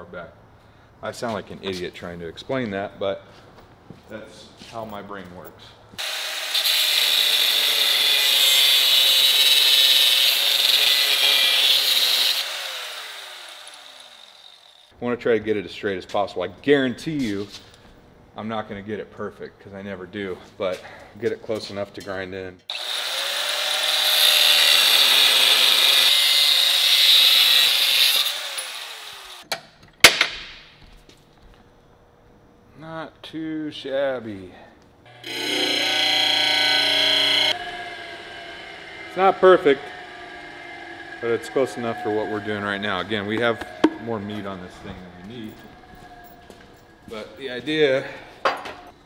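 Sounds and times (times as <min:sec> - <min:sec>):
angle grinder cutting steel: 0:06.0 - 0:14.9, 0:22.7 - 0:29.4, 0:35.1 - 0:47.8
sharp knocks: 0:43.3 - 0:44.0.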